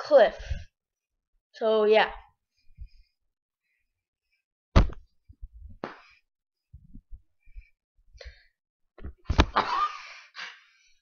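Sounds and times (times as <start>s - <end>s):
sharp thunk on camera: 4.8s - 5.0s.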